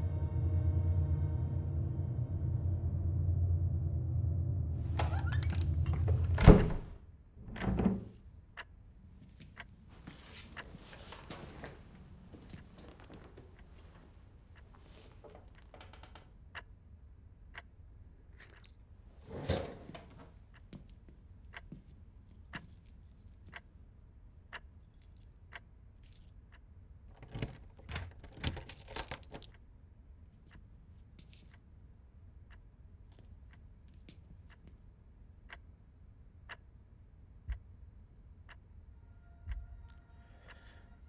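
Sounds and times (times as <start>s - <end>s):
clock ticking: 16.5s - 16.8s, 17.4s - 17.8s, 37.5s - 38.8s
keys jangling: 27.2s - 29.5s.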